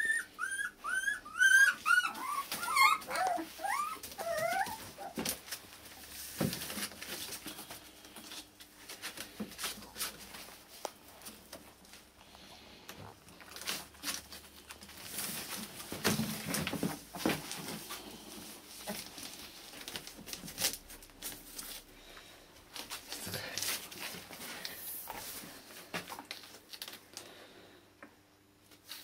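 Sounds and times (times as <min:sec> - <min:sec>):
dog whimpering: 0:00.0 - 0:05.2
dogs rustling and tapping: 0:12.9 - 0:21.9.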